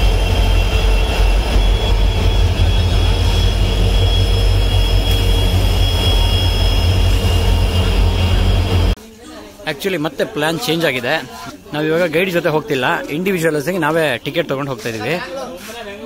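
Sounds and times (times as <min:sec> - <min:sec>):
diesel locomotive engines rumbling: 0:00.0 - 0:09.0
high engine whine: 0:00.0 - 0:09.0.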